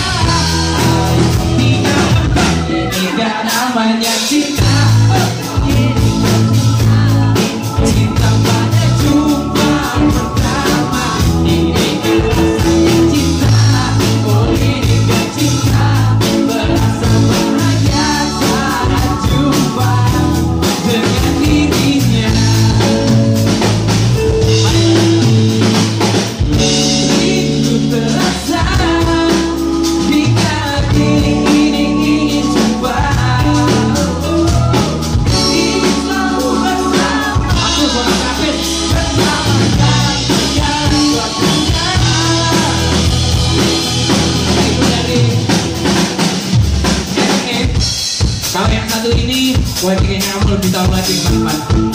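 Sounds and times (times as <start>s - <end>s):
bass: 0.0s - 51.9s
drum kit beat: 0.0s - 51.9s
electric guitars: 0.0s - 51.9s
man singing: 0.0s - 51.9s.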